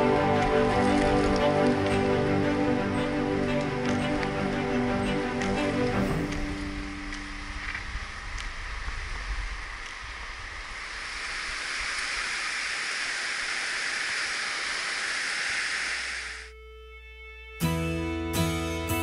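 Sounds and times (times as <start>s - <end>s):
soft music: 0.0s - 8.1s, 16.5s - 19.0s
low rumble: 0.0s - 12.2s.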